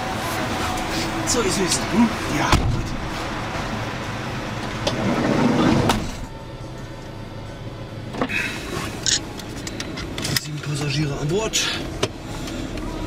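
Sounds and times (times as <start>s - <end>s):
van sliding door closing: 2.4s - 3.8s, 4.5s - 6.3s.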